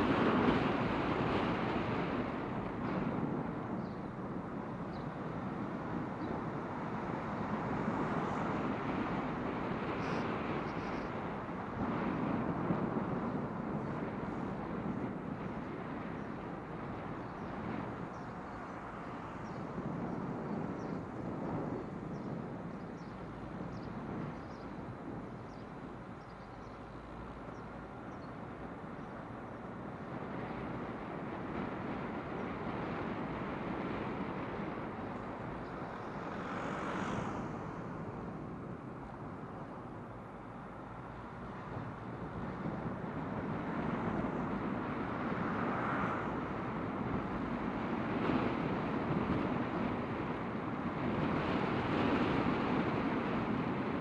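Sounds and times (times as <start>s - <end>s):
traffic passing on road: 0.0s - 54.0s
hissy vehicle pass: 26.8s - 54.0s.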